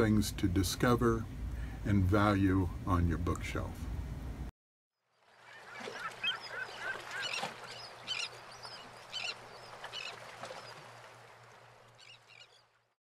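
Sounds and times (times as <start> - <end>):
water birds squawking: 5.1 - 13.0.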